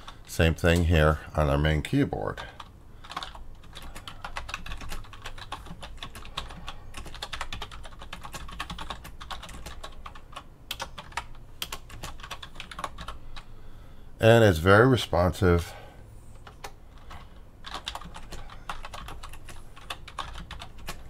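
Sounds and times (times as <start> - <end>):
keyboard typing: 2.6 - 13.5, 16.3 - 21.0.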